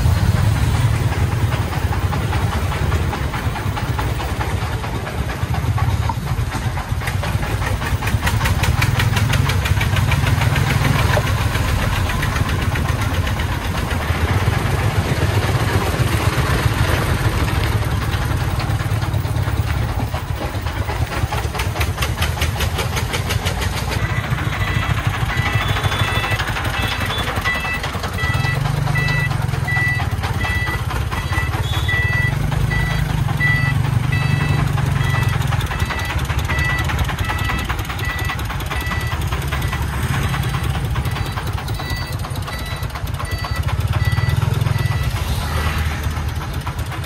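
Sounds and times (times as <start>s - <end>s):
diesel engine chugging: 0.0s - 47.0s
reversing beeper: 23.9s - 45.7s.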